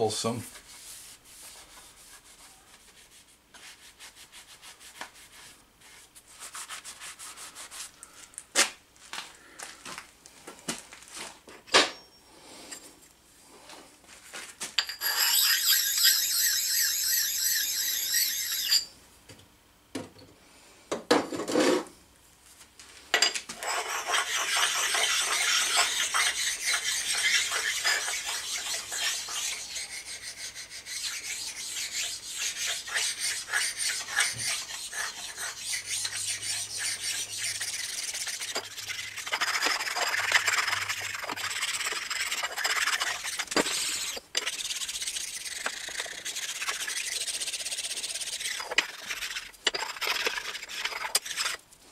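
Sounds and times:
stone scraping on cast iron: 14.8s - 18.9s, 23.6s - 51.6s.

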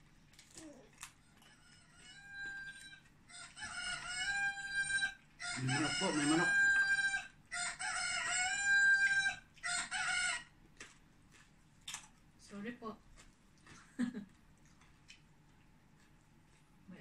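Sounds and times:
rooster crowing: 1.4s - 10.5s.

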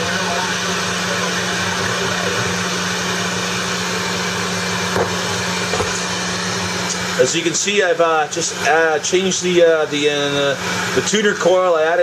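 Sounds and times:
radio static hiss: 0.0s - 3.3s.

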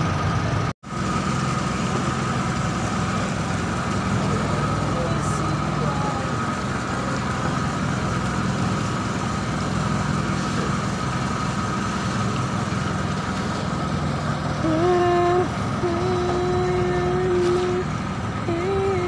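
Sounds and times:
boat engine rumble: 0.0s - 19.0s.

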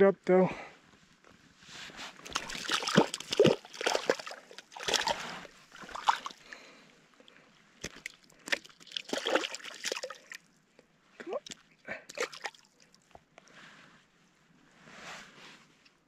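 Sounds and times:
shallow water splashing: 2.2s - 6.6s, 7.8s - 10.4s.

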